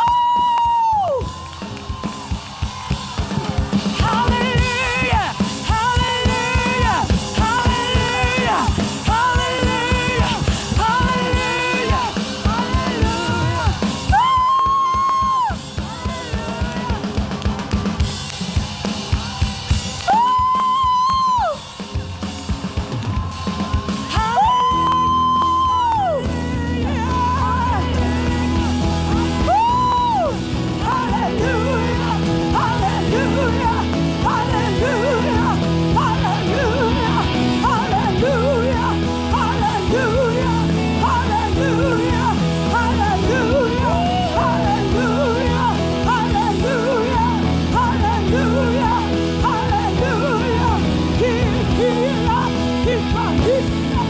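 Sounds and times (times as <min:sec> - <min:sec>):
congregation clapping: 0:00.0 - 0:05.6, 0:15.1 - 0:20.9
gospel band playing: 0:00.0 - 0:54.0.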